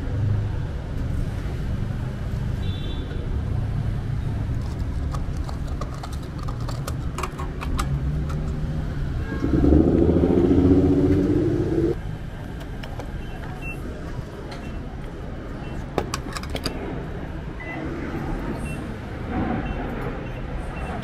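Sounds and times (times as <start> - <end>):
traffic rumble: 0.0 - 21.0
engine hum: 6.2 - 12.4.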